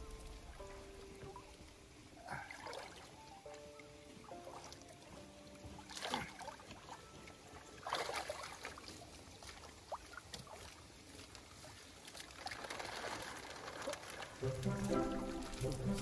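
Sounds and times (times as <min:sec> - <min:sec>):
water splashing and sloshing: 0:00.0 - 0:16.0
water pouring: 0:07.8 - 0:16.0.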